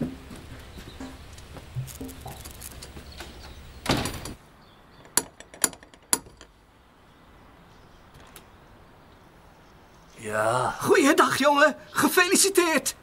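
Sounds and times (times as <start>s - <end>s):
door banging shut: 3.8s - 4.4s.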